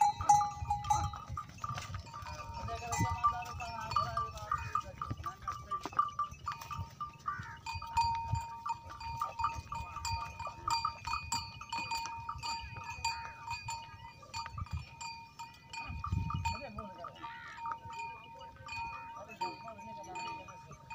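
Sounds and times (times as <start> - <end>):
metal neck bells clinking: 0.0 - 20.9.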